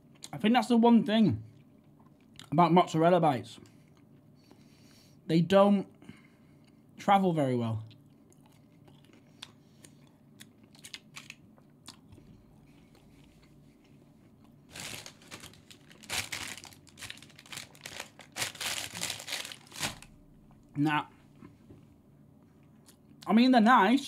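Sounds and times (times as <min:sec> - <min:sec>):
chewing with mouth clicks: 0:07.8 - 0:14.6
paper bag rustling: 0:14.7 - 0:20.2.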